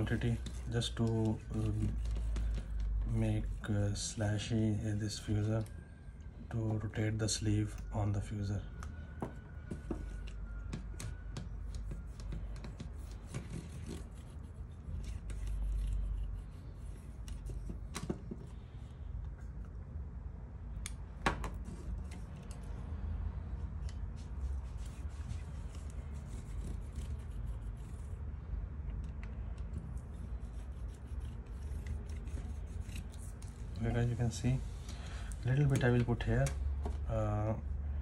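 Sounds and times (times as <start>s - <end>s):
fingertips rubbing grease on parts: 29.0s - 34.6s.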